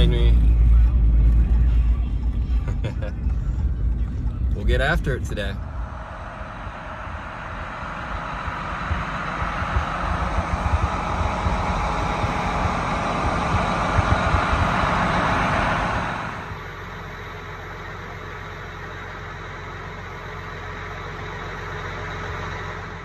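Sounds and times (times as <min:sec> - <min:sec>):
loud rushing rumbling noise: 0:00.0 - 0:17.6
tractor engine humming: 0:00.0 - 0:23.0.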